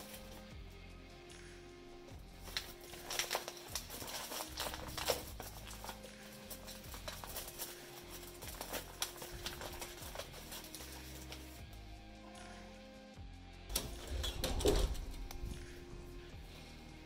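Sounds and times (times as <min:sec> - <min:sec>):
paper bag crinkling and rustling: 0:02.3 - 0:11.6.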